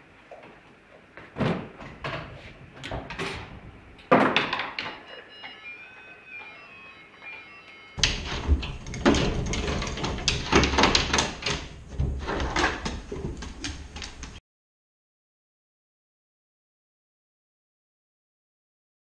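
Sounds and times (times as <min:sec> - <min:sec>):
clattering and rattling: 0:08.0 - 0:14.4
dog pawing at wire contraption: 0:08.0 - 0:14.4.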